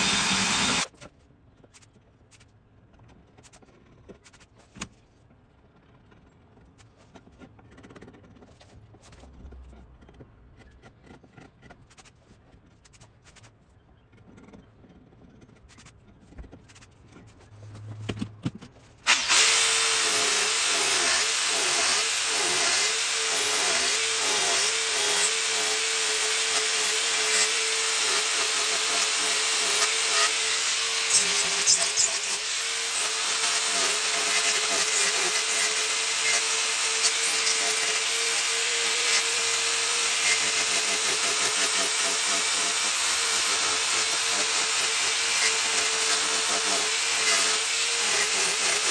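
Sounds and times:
angle grinder grinding wood: 0.0 - 0.9, 19.0 - 48.9.

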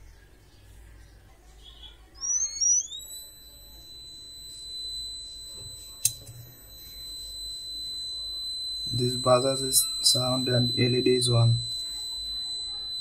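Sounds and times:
high-pitched buzzer tone: 2.1 - 13.0
sharp click: 6.0 - 6.4.

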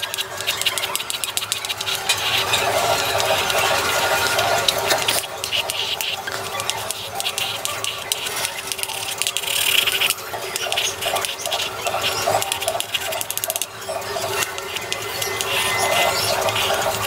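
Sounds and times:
chalk tapping on blackboard: 4.3 - 13.7.

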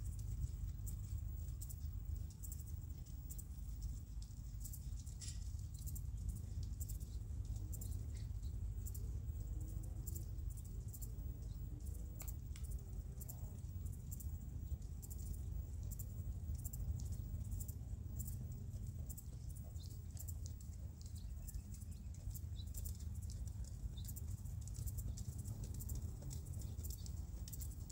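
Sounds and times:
hooves on sand: 0.0 - 27.9
light ticks: 0.0 - 27.9
steady low rumble: 0.0 - 27.9.

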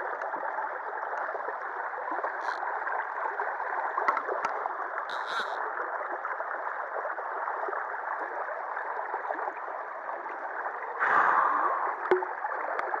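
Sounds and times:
water rushing over weir: 5.0 - 5.8.

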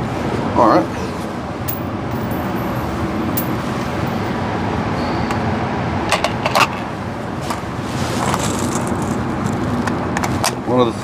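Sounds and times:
air handling hum: 1.7 - 4.6.

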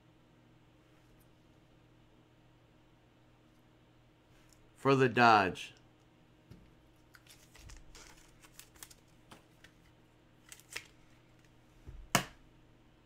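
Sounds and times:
cards and plastic rustling: 7.0 - 11.6.

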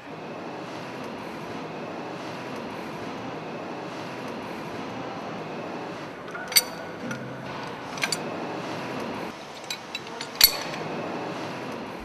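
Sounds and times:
metal parts clinking: 6.4 - 6.8, 9.5 - 10.8.

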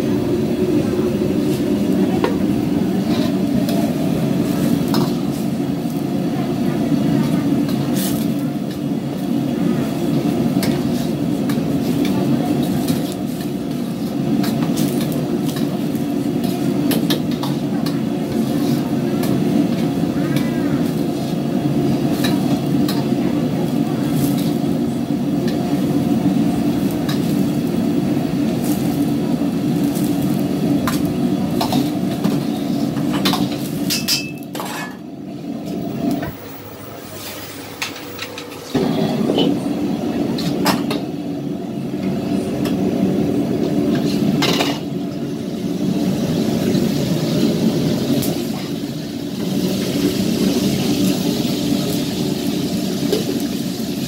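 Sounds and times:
gas burner rushing: 0.0 - 54.0
ladle scraping and clinking wok: 3.0 - 6.0.

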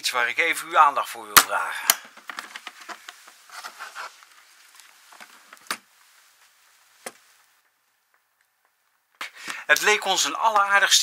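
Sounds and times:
rustling and small clicks: 2.1 - 9.9.

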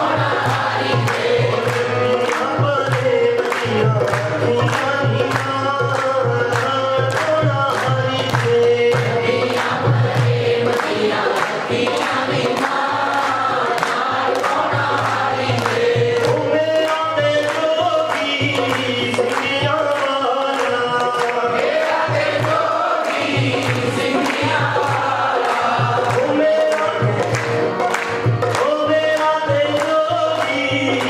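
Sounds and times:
congregation singing: 0.0 - 31.0
harmonium: 0.0 - 31.0
people clapping: 0.0 - 31.0
man singing: 1.5 - 9.6, 15.8 - 21.6, 25.9 - 27.7, 28.4 - 31.0.

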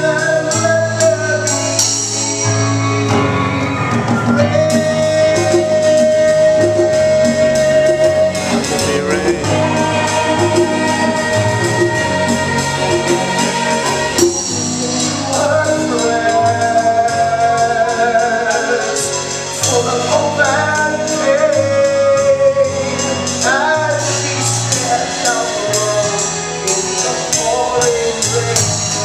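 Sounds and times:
cymbals keeping a beat: 0.0 - 29.0
live pit band: 0.0 - 29.0
cast singing a show tune: 4.4 - 15.1.

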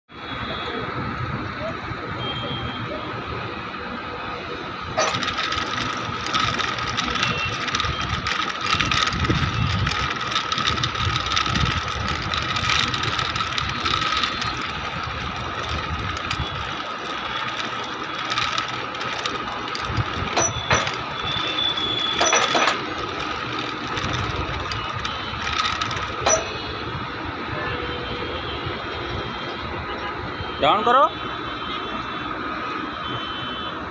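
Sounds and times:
hoist machinery whine: 4.8 - 27.3
rapid clicking and rattling: 4.9 - 27.1.

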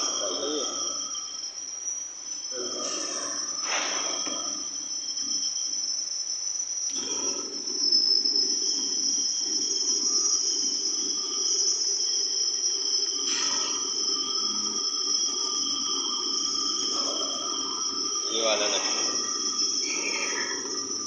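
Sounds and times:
cutting tool whine: 0.0 - 5.5, 13.2 - 21.0
machine hum: 0.0 - 21.0.

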